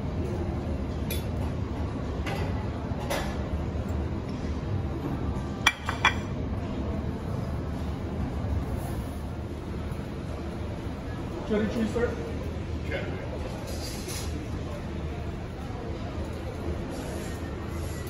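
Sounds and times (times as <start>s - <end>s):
metal utensils clinking on pans: 5.6s - 6.3s.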